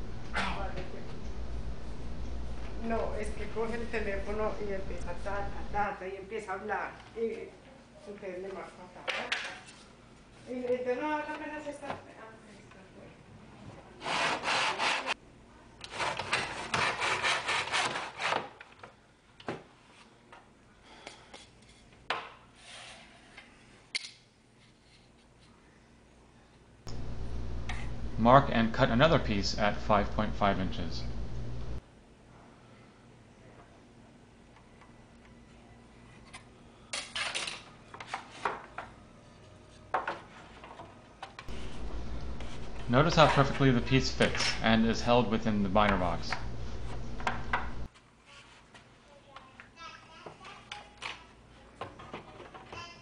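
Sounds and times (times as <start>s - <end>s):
hand saw cutting board: 14.0s - 15.2s, 15.9s - 18.5s.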